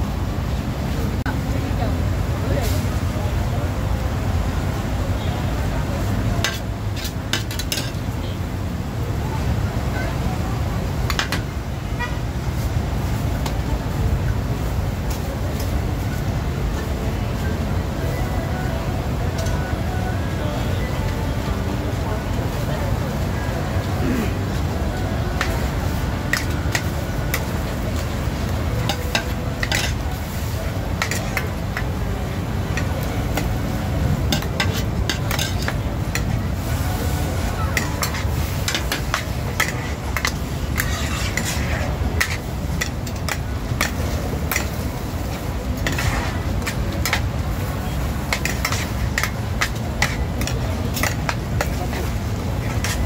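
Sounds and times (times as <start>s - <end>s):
metal ladles scraping a wok: 6.4s - 8.0s, 25.3s - 53.0s
food sizzling: 23.9s - 53.0s.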